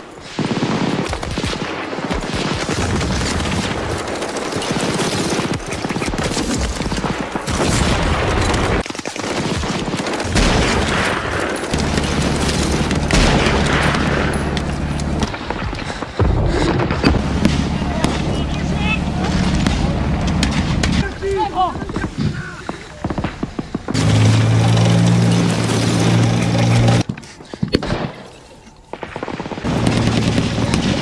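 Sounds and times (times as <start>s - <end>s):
gunfire crackling: 0.0s - 31.0s
armoured car engine running: 11.6s - 15.4s, 17.1s - 21.0s, 23.9s - 27.1s, 29.7s - 31.0s.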